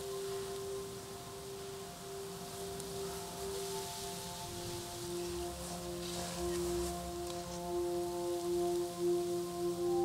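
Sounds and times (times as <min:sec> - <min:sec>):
faint hiss: 0:00.0 - 0:10.0
slow ambient music: 0:00.0 - 0:10.0.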